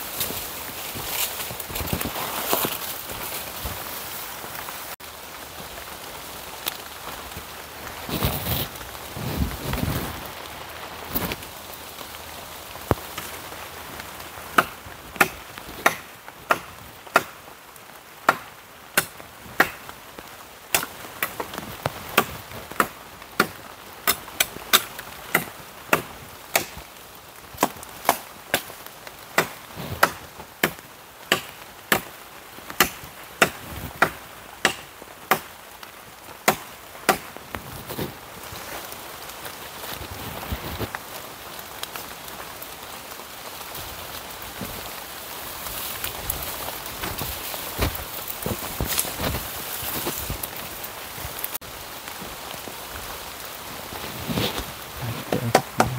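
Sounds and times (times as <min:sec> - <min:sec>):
light rain patter: 0:00.0 - 0:55.9
wood being chopped: 0:14.6 - 0:17.4, 0:18.3 - 0:19.8, 0:22.2 - 0:26.8, 0:29.4 - 0:32.1, 0:32.8 - 0:35.5, 0:36.4 - 0:37.3, 0:55.1 - 0:55.9.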